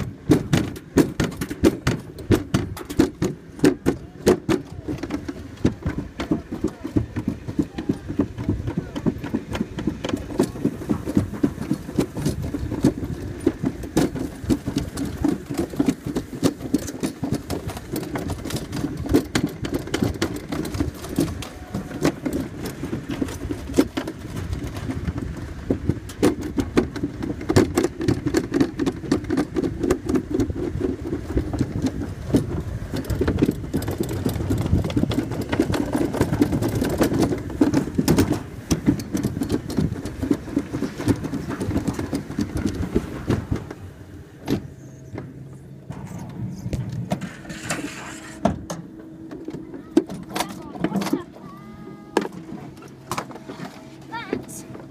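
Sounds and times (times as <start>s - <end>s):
sharp clacks and rattles: 0.0s - 43.8s
sled rumbling down steel trough: 0.0s - 54.9s.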